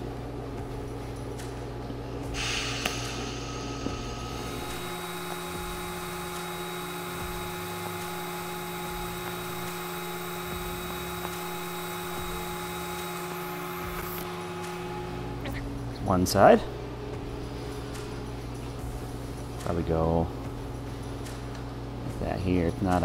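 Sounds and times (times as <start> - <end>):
low hum: 0.0 - 22.3
welding arc hissing: 2.3 - 15.6.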